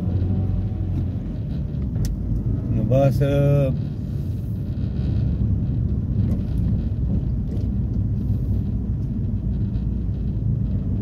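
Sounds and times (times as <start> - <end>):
car driving rumble from cabin: 0.0 - 11.0.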